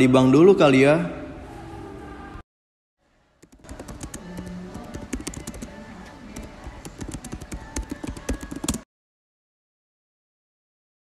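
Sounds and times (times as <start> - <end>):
background music: 3.4 - 8.8
typing on laptop keyboard: 3.4 - 8.9.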